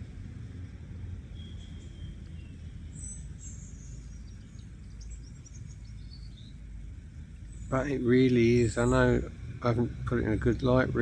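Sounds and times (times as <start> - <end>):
birds chirping and twittering: 0.0 - 11.0
steady low rumble: 0.0 - 11.0.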